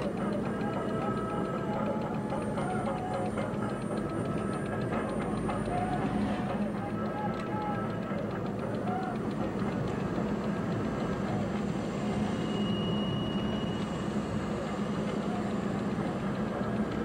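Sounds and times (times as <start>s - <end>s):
car engine and tyre drone: 0.1s - 17.0s.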